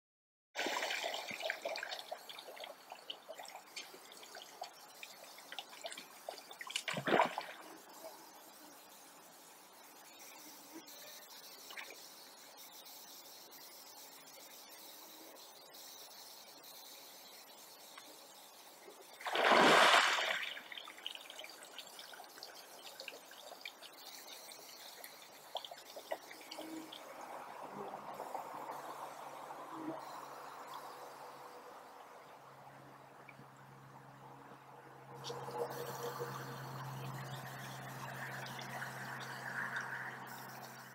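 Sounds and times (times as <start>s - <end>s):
water splash: 0.6s - 2.2s, 6.6s - 7.7s, 19.2s - 21.2s
water dripping and trickling: 0.6s - 7.6s, 19.2s - 27.2s
water pouring off moose head: 19.2s - 20.6s.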